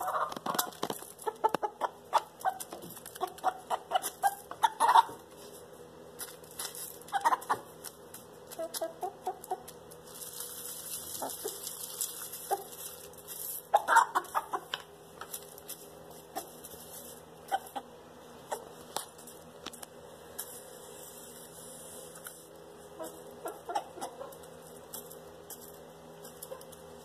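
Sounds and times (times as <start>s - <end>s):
chickens clucking: 0.0s - 5.4s, 7.0s - 9.9s, 11.0s - 12.8s, 13.5s - 14.9s, 16.2s - 19.0s, 22.8s - 25.0s.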